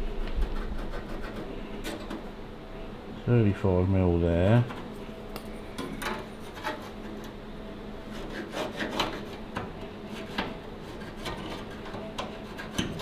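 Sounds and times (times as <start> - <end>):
pencil scratching: 0.5 - 1.5
steel rule scraping sheet metal: 6.4 - 7.3, 8.1 - 9.4, 10.1 - 13.0.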